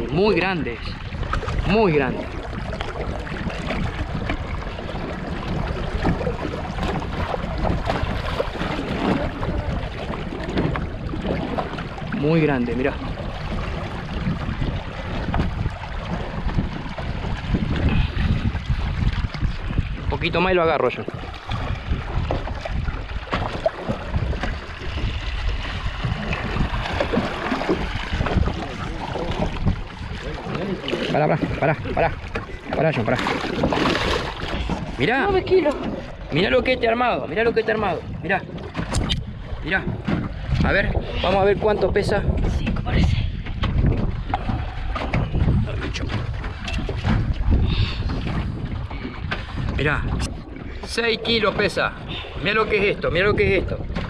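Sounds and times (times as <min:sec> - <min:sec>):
water lapping against boat: 0:00.0 - 0:54.0
wind buffeting microphone: 0:00.0 - 0:54.0
splashes and knocks: 0:00.8 - 0:36.4, 0:38.4 - 0:51.9.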